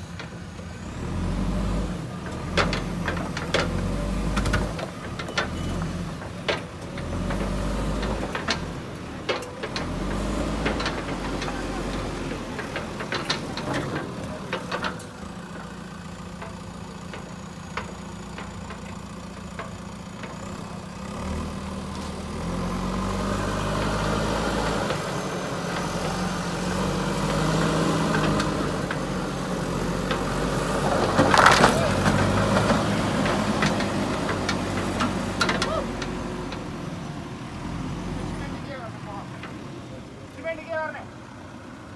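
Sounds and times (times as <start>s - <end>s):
diesel engine running: 0.0s - 41.9s
clicks and knocks: 2.2s - 20.6s, 30.0s - 36.7s
loud crunch: 30.8s - 33.5s.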